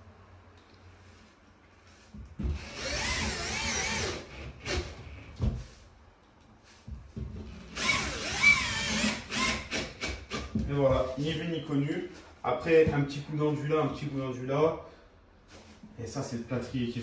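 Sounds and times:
drill driving screws: 2.5 - 5.0, 7.5 - 10.5.

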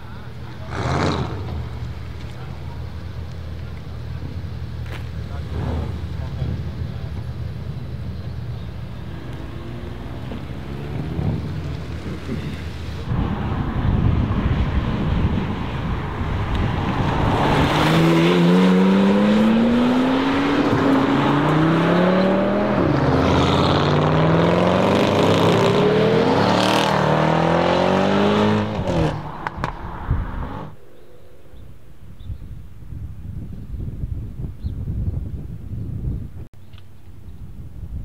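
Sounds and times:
other cars driving past: 0.0 - 32.0
car accelerating hard past: 16.3 - 30.8.

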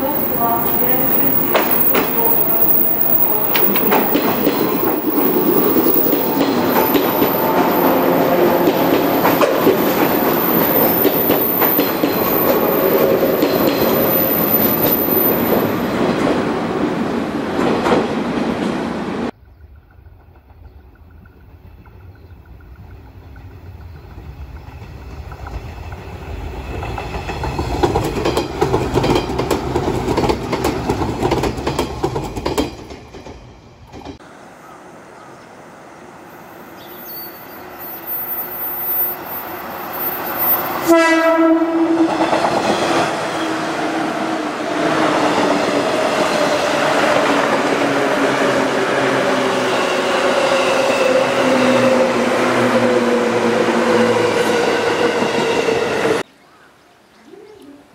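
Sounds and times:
wheels clacking over rail joints: 0.0 - 16.5, 19.7 - 34.2
electric train running by: 0.0 - 56.2
train horn blast: 7.0 - 9.8, 40.6 - 42.3.

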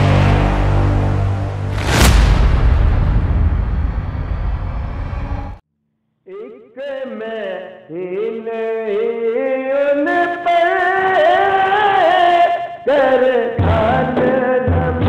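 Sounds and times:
man singing: 6.3 - 15.0.

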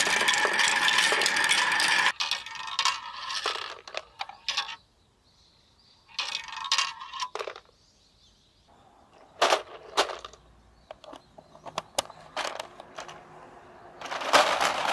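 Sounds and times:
plastic balls clattering into jar: 0.0 - 4.8, 6.1 - 7.7, 9.3 - 13.2, 14.0 - 14.9
sharp plastic clicks: 9.4 - 13.2.

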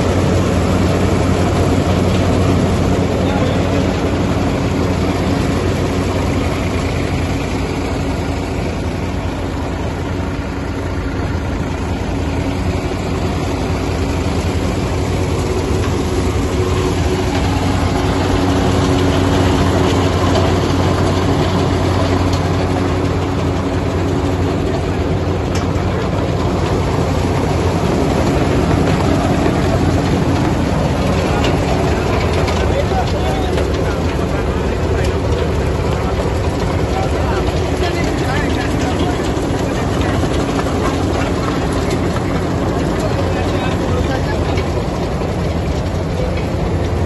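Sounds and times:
tractor engine running: 0.0 - 47.0
vibrating screens rattling: 10.8 - 47.0.

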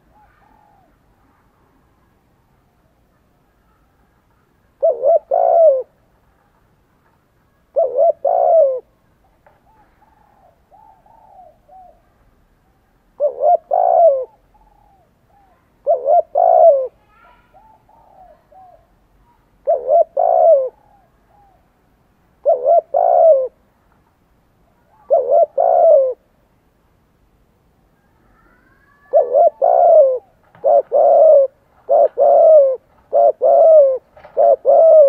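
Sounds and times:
dove cooing: 0.0 - 1.2, 4.7 - 6.0, 7.7 - 8.9, 9.6 - 12.2, 13.2 - 19.0, 19.6 - 21.7, 22.4 - 23.6, 24.9 - 26.3, 28.3 - 35.0.

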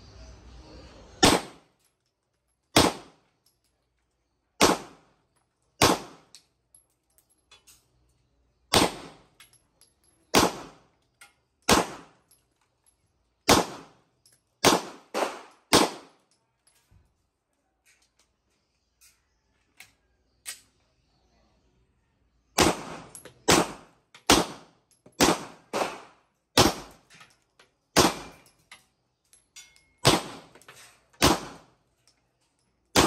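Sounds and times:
pistol shots: 1.2 - 1.7, 2.7 - 3.2, 4.6 - 5.1, 5.8 - 6.3, 8.7 - 9.3, 10.3 - 10.8, 11.7 - 12.2, 13.4 - 14.0, 14.6 - 16.2, 22.6 - 27.0, 27.9 - 28.4, 30.0 - 30.6, 31.2 - 31.7.

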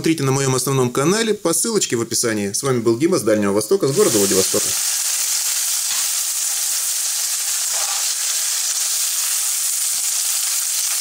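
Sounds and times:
food sizzling in a pan: 3.7 - 11.0.

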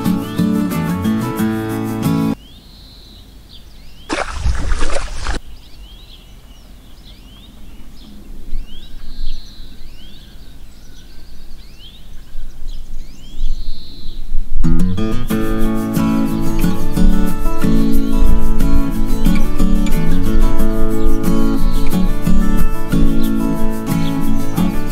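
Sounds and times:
birds chirping: 2.4 - 14.4
water pouring from clay pot: 4.1 - 5.4.

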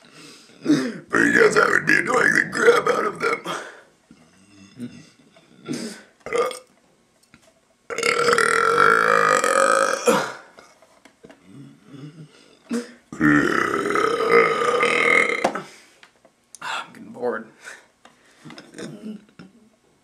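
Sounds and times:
man burping: 4.5 - 6.7, 7.9 - 10.6, 11.6 - 15.7.

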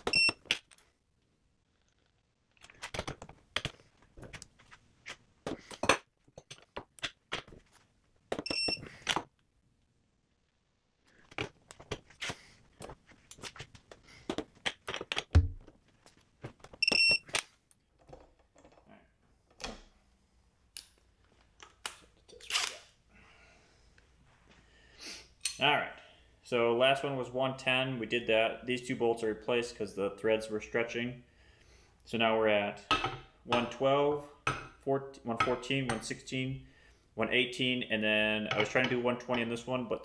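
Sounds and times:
short electronic beeps: 0.1 - 0.4, 8.5 - 8.8, 16.8 - 17.2.

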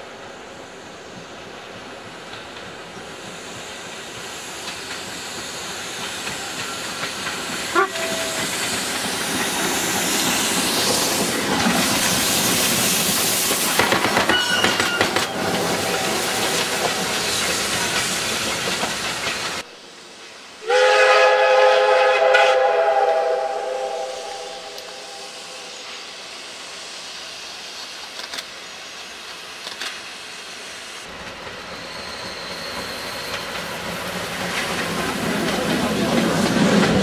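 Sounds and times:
steam locomotive passing: 0.0 - 37.0
steam whistle chord: 20.6 - 25.9.

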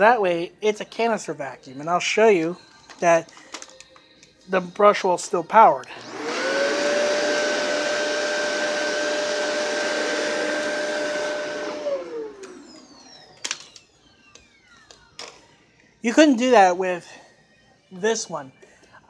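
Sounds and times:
vacuum motor winding down: 5.8 - 15.9
vacuum cleaner running on carpet: 5.9 - 13.5.

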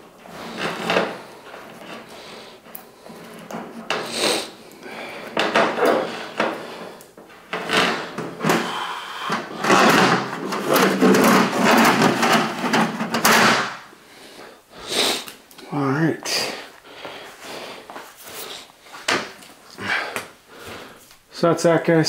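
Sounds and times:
drain-snake cable scraping and rattling: 5.4 - 13.7.

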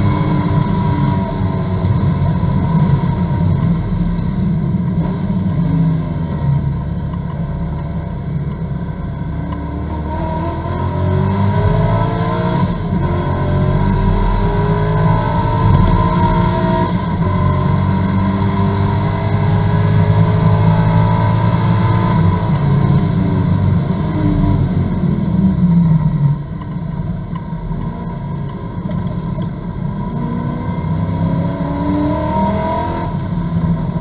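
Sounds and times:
race car engine accelerating: 9.2 - 34.0.

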